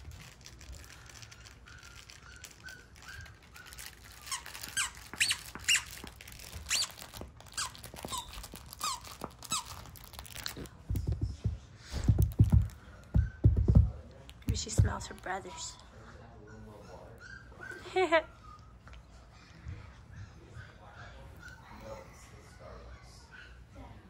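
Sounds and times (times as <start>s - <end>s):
puppy whimpering: 14.6s - 19.6s.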